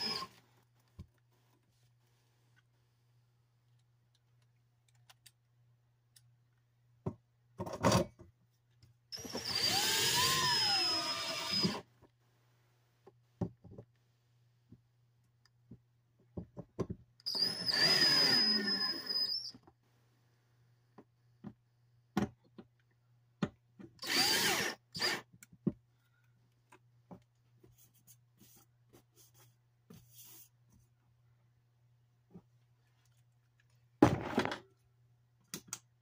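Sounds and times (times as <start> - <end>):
cordless drill driving screws: 0.0 - 0.3, 9.2 - 11.8, 17.3 - 19.5, 24.0 - 25.3.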